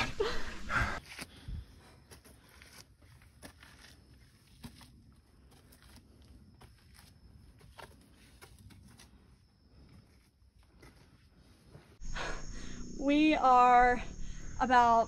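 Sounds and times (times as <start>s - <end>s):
footsteps on clay trail: 0.1s - 12.0s.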